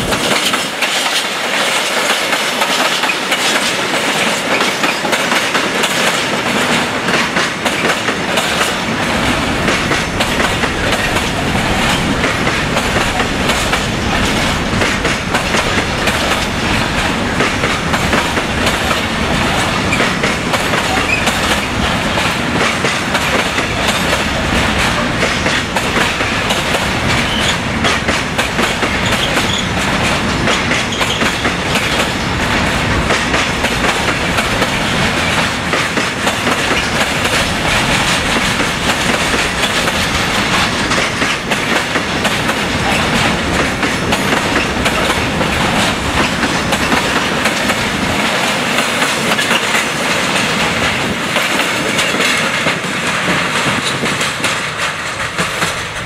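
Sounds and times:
freight train wheels rumbling: 0.0s - 56.0s
wheels clicking over rail joints: 0.0s - 56.0s.

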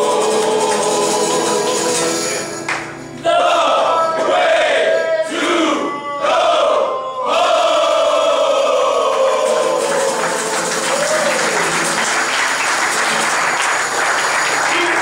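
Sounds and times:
hands clapping in applause: 2.6s - 3.0s, 9.1s - 15.0s.

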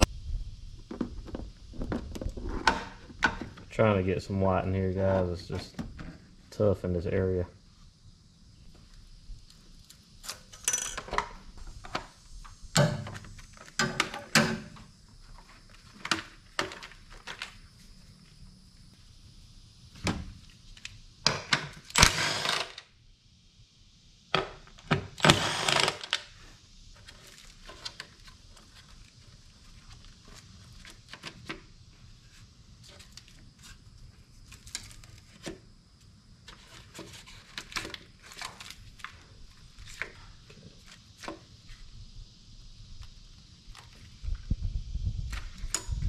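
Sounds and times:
tool handling bursts: 25.2s - 26.2s.

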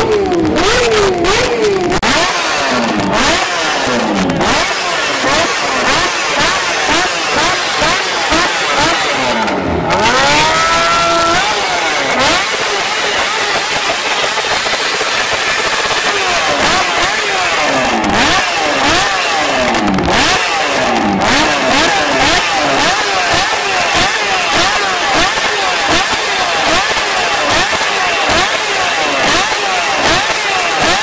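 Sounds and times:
motorcycle engine revving: 0.0s - 31.0s.

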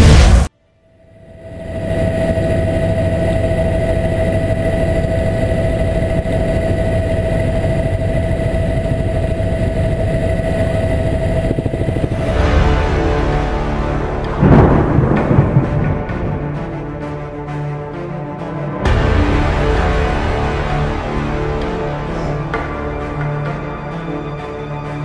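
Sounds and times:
mechanical drone with whine: 0.0s - 17.7s.

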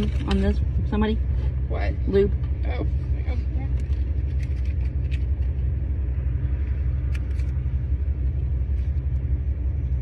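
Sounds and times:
vehicle engine idling: 0.0s - 10.0s.

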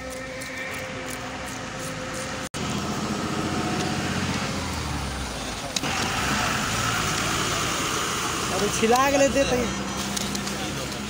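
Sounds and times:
street noise: 0.0s - 11.0s.

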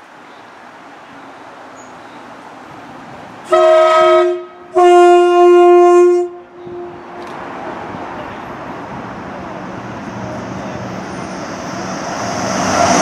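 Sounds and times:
train rumble: 0.0s - 13.0s
two-tone train horn blasts: 3.5s - 7.3s.

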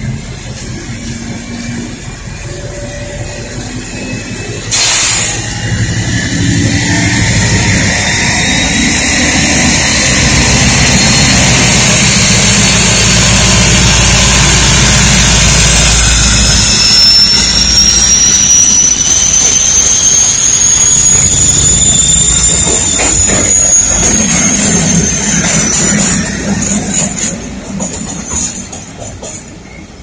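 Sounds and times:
high whine: 0.0s - 26.6s
train engine rumble: 0.0s - 30.0s.

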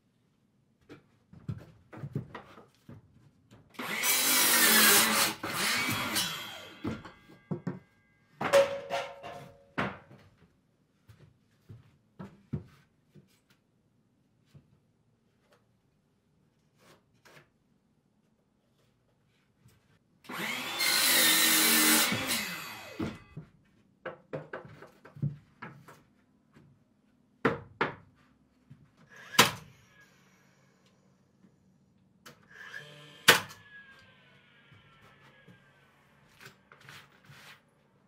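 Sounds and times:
power tool running: 20.3s - 23.3s.

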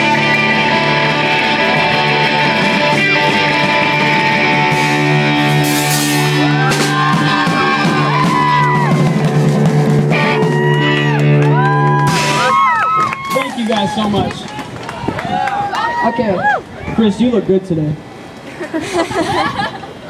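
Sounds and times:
electric guitar: 0.0s - 13.4s
drum kit: 0.0s - 14.2s.

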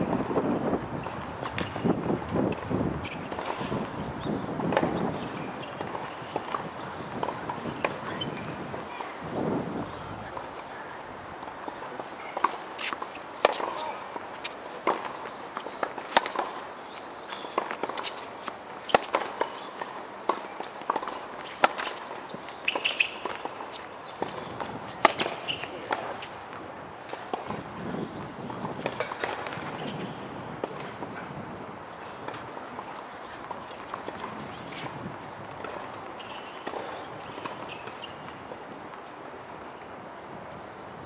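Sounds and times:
tennis ball hitting rackets: 4.7s - 8.5s, 11.4s - 26.3s.

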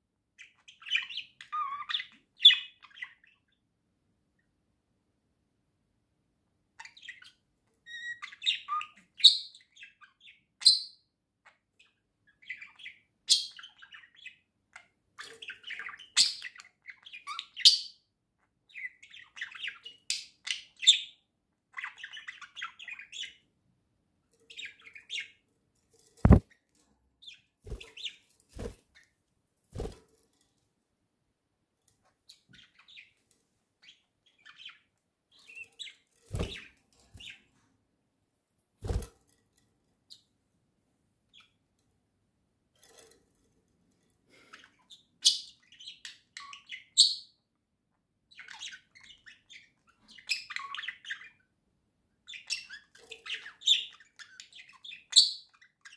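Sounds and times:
budgerigars chattering and chirping: 52.3s - 55.9s.

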